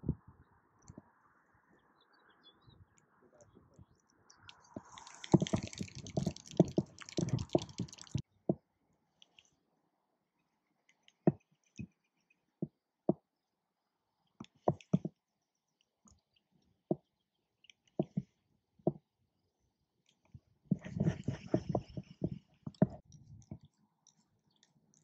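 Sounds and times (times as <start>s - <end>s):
rustling and crackling: 4.5s - 8.2s, 20.7s - 25.0s
sharp knocks and taps: 4.5s - 8.6s, 11.2s - 12.0s, 14.4s - 15.2s, 20.7s - 23.7s.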